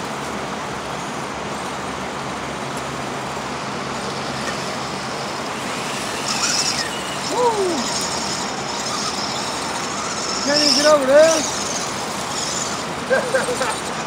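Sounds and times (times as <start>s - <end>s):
rushing background noise: 0.0s - 14.0s
high-pitched whine: 2.9s - 14.0s
falling whistle-like tone: 5.7s - 12.8s.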